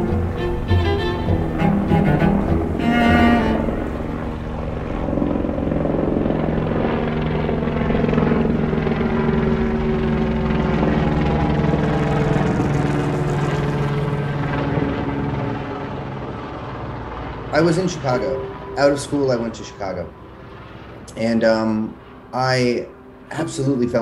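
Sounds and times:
street traffic: 0.0s - 5.2s, 12.2s - 24.0s
pitched mechanical drone: 0.0s - 24.0s.

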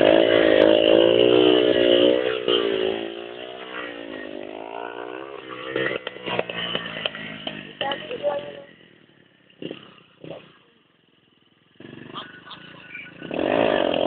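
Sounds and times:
motorcycle engine revving: 0.0s - 14.0s
sharp clatters: 3.5s - 8.8s.

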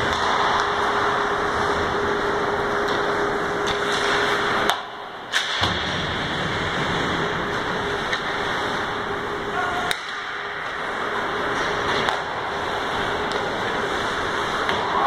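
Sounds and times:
hockey sticks and puck clacks: 0.0s - 6.1s, 7.1s - 9.0s, 9.8s - 15.0s
arena noise: 9.0s - 15.0s.

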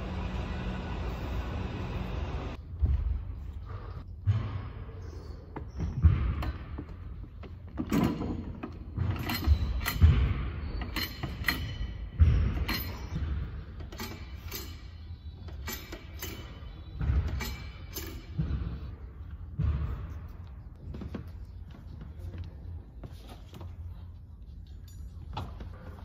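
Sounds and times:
weight stack thuds and clinks: 5.6s - 18.9s.

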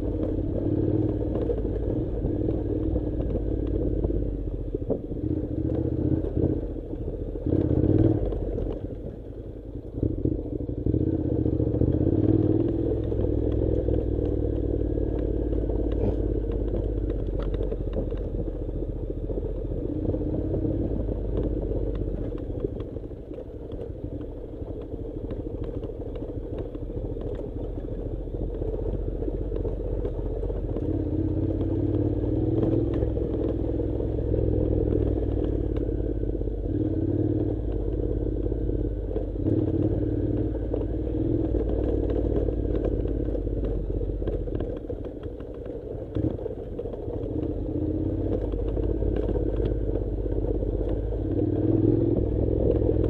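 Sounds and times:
motorcycle engine running: 0.0s - 53.0s
stones clicking under tyres: 0.0s - 53.0s.

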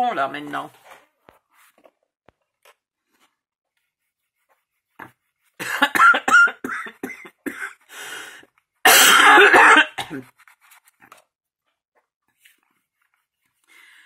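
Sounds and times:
woman coughing hard: 5.6s - 7.9s, 8.8s - 10.3s.

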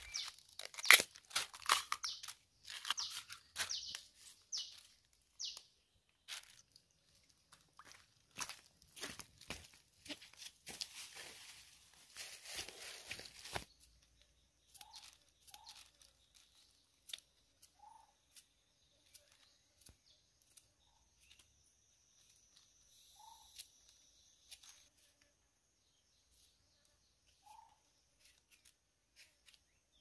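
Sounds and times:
soft bird calls: 12.8s - 24.9s, 26.2s - 30.0s
plastic bag crinkling: 14.9s - 16.7s.

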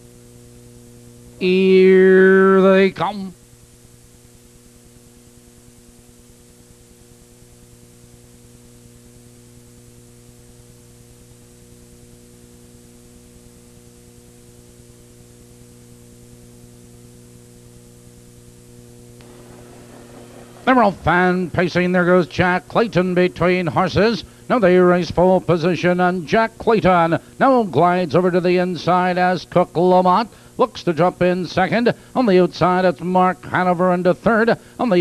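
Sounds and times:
electrical mains hum: 0.0s - 35.0s
hiss: 19.2s - 21.1s.

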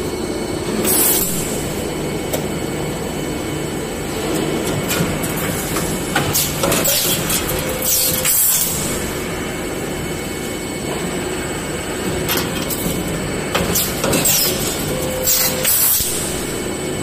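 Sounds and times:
machine mechanical hum: 0.0s - 17.0s.

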